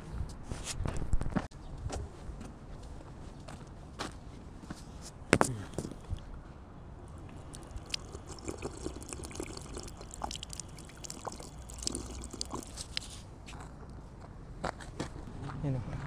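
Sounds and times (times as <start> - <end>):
fountain water trickling and splashing: 7.1 - 13.2.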